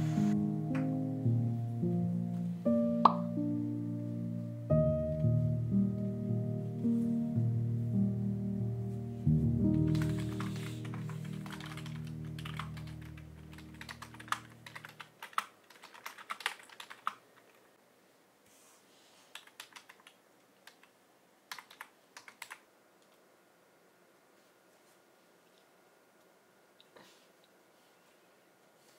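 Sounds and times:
soft background music: 0.0 - 15.0
keyboard typing: 9.7 - 17.6, 19.3 - 22.6.

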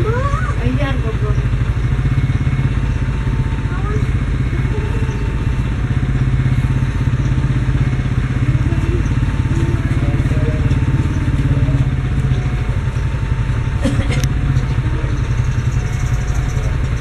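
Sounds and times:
engine running with pulsing rumble: 0.0 - 17.0.

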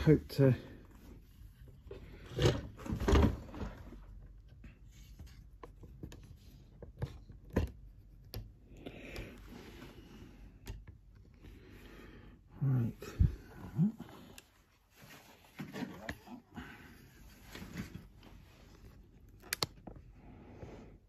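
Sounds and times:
sharp clicks: 19.4 - 19.8.

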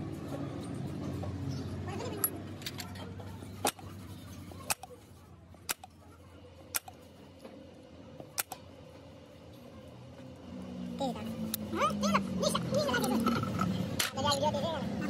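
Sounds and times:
sharp metal clicks: 4.6 - 5.0, 5.6 - 6.0, 6.7 - 7.1, 8.3 - 8.7.

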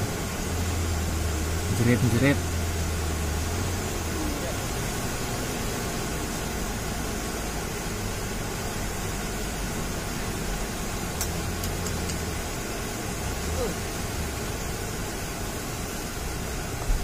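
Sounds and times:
diesel truck engine droning: 0.0 - 17.0
faint clicks: 11.2 - 12.3.

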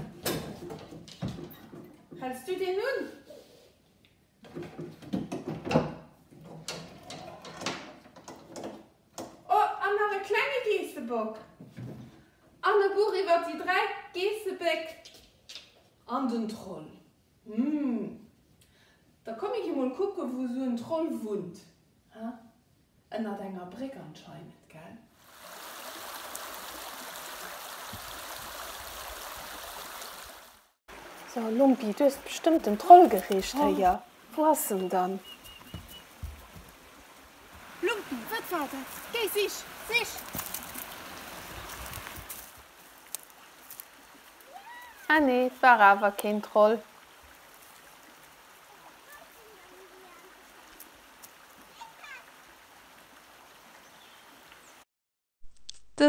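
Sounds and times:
stream flowing over stones: 25.2 - 54.8.

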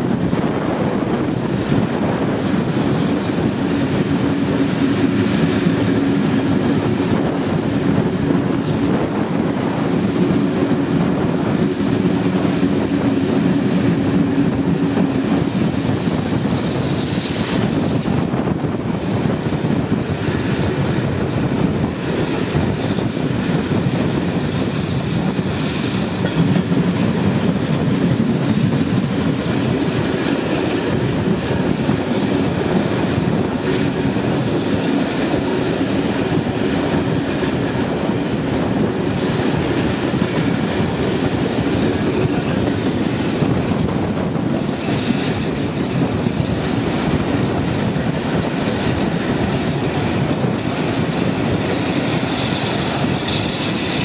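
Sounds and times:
train rumbling on rails: 0.0 - 54.0.

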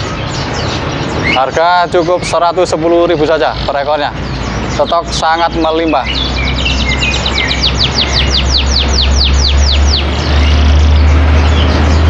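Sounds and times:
songbird singing high notes: 0.0 - 12.0
low engine hum: 4.1 - 12.0.

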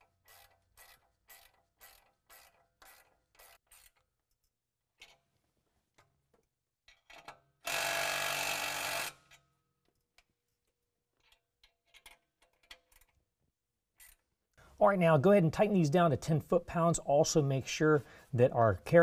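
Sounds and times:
electric impact driver running: 7.7 - 9.2.

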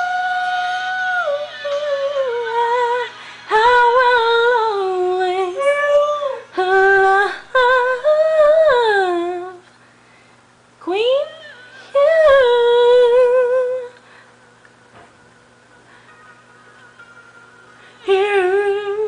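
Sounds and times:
person singing: 0.0 - 9.6, 17.7 - 19.0.

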